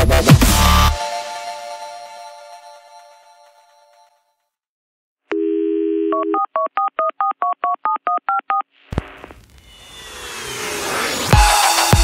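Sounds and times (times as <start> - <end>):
rising noise: 9.0 - 12.0.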